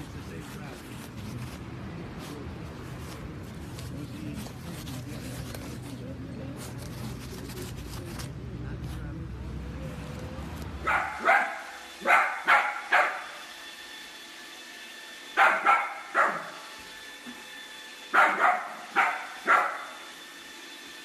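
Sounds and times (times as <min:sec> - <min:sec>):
small dog barking: 0:10.8 - 0:13.4, 0:15.4 - 0:16.7, 0:18.1 - 0:20.1.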